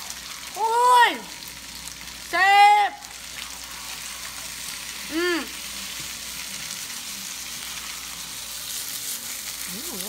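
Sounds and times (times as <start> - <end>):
pan sizzling: 0.0 - 10.0
high voice exclamation: 0.6 - 1.3, 2.3 - 3.1, 5.1 - 5.6.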